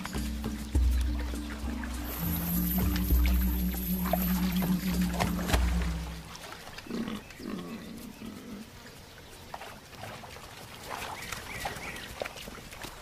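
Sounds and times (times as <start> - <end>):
music: 0.0 - 6.4
faint outdoor noise: 0.0 - 13.0
forest hog grunting: 6.8 - 8.8.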